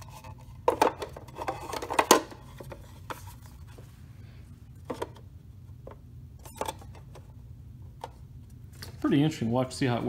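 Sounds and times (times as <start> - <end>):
plastic parts knocking together: 0.6 - 2.4.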